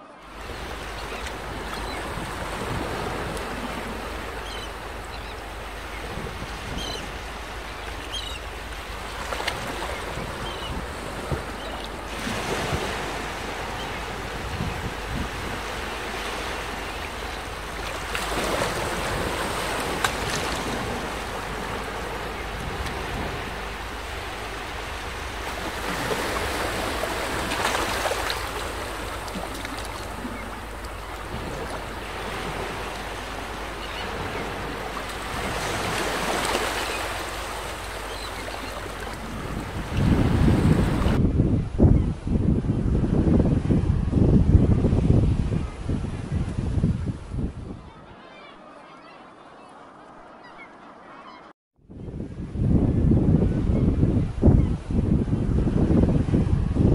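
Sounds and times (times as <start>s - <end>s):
wind: 0.0s - 56.9s
sea waves breaking on rocks: 0.3s - 41.2s.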